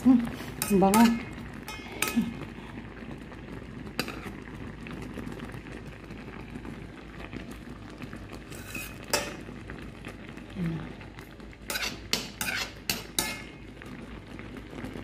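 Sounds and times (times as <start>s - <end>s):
pot boiling and bubbling: 0.0s - 15.0s
metal spoon clinking on pot: 0.6s - 2.3s, 8.6s - 9.4s, 11.7s - 13.5s.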